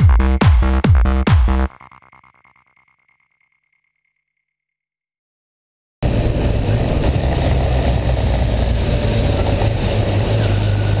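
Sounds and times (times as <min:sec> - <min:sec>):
road noise rushing: 0:06.0 - 0:11.0
vehicle engine hum: 0:06.0 - 0:11.0.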